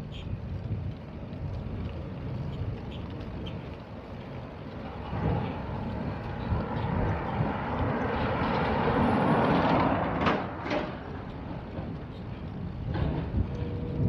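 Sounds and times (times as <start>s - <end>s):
bicycle tyre rumble: 0.0s - 14.0s
wind buffeting microphone: 0.0s - 14.0s.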